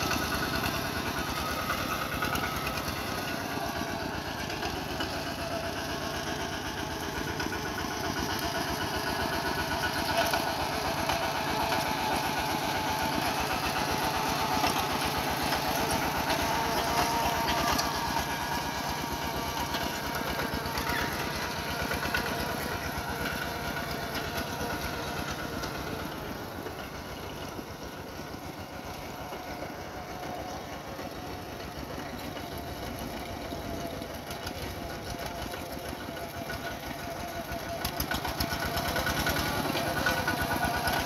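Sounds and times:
tractor diesel engine running: 0.0 - 41.0.

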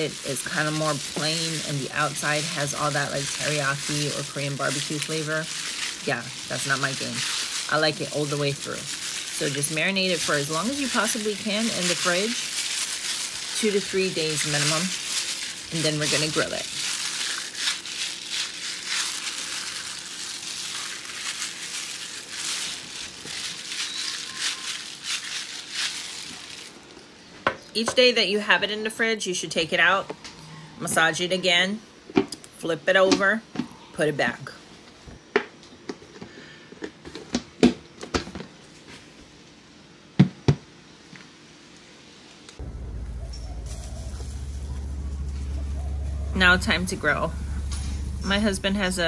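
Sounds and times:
plastic glove crinkling: 0.0 - 27.9, 42.6 - 49.0.

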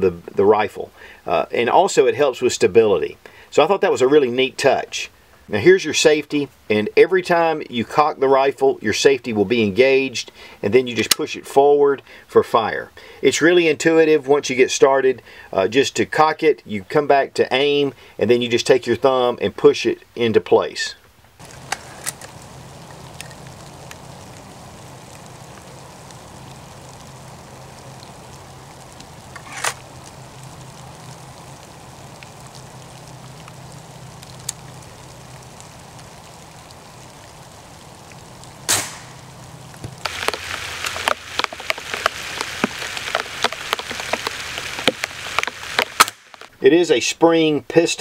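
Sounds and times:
small crackling ticks: 21.0 - 46.6
air rifle firing: 38.7 - 39.2.

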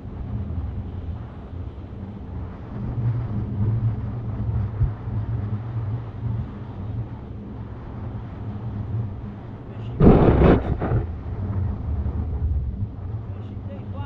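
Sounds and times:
wind rumbling on microphone: 0.0 - 14.0
surf breaking on a beach: 9.6 - 14.0.

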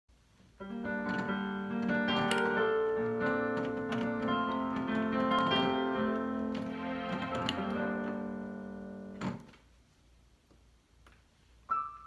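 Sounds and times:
digital piano playing: 0.6 - 9.5, 11.6 - 12.0.

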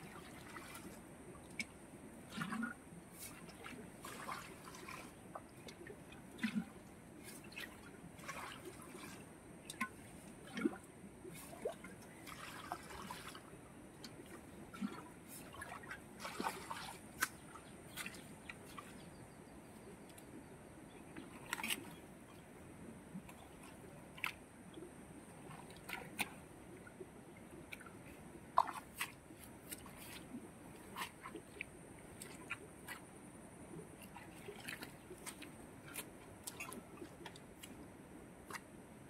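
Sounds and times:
muddy water trickling and dripping: 0.0 - 39.0
small wet clicks: 1.4 - 2.5, 21.1 - 22.4, 34.0 - 38.7.

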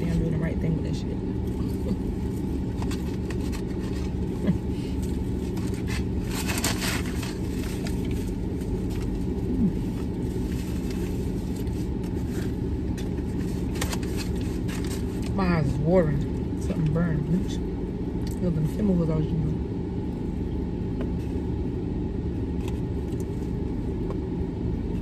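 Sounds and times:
car engine idling: 0.0 - 25.0
food packaging rustling: 1.8 - 4.3, 5.0 - 15.4.

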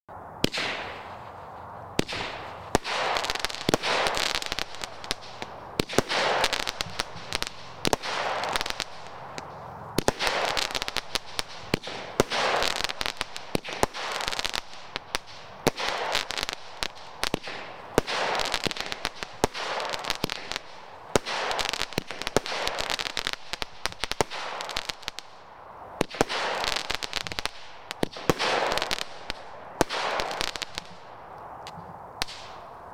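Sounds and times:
firework launch pops: 0.4 - 1.1, 2.0 - 14.2
firework crackling bursts: 0.4 - 31.3.

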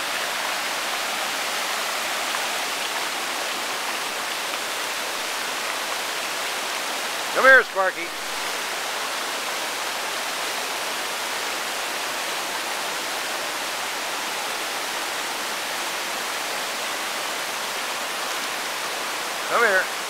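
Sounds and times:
stream rushing over boulders: 0.0 - 20.0.

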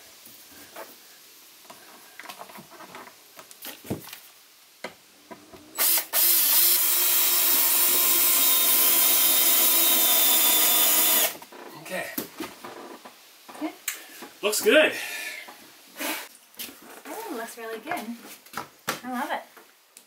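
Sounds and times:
cordless drill driving screw: 5.8 - 11.4.

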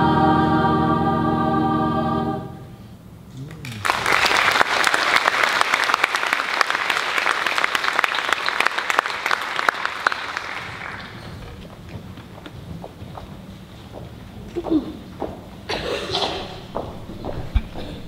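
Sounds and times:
audience applauding: 3.5 - 12.4.

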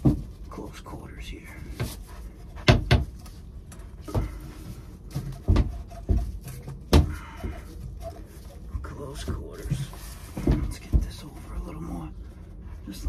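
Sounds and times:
copper pipe knocking: 5.2 - 7.7.

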